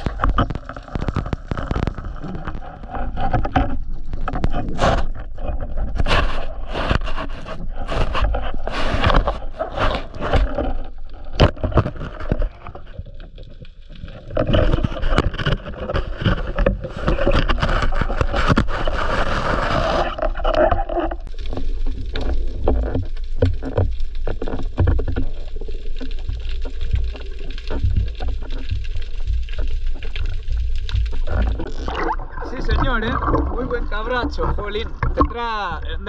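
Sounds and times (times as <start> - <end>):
speargun clicking and scraping on rock: 0.0 - 13.0, 14.2 - 25.4.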